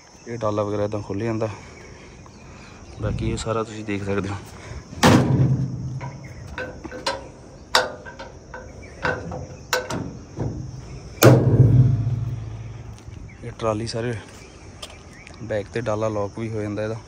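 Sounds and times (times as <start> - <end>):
latch clicks: 5.0 - 11.8
ringing metal clang: 5.0 - 12.9
metal tailgate bang: 5.0 - 13.0.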